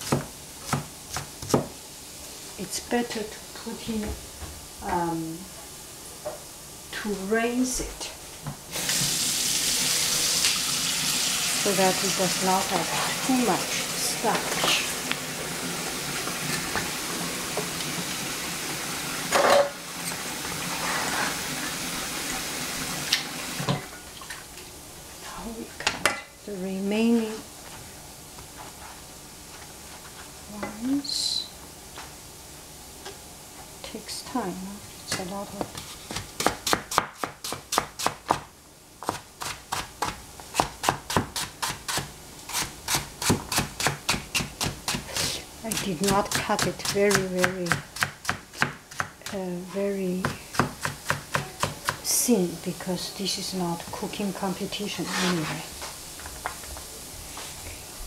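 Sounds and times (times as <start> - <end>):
food hissing on stove: 8.7 - 23.7.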